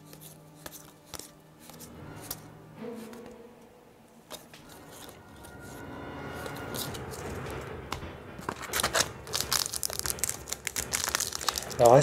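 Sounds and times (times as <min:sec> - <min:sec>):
cards rustling: 0:00.0 - 0:02.4, 0:04.3 - 0:05.8, 0:08.4 - 0:12.0
foil card pack crinkling: 0:08.5 - 0:12.0.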